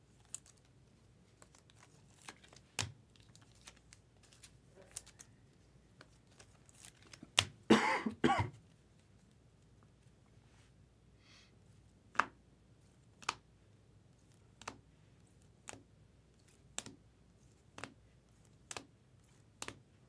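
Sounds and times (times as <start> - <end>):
trading cards rustling: 0.1 - 7.6
person coughing: 7.7 - 8.6.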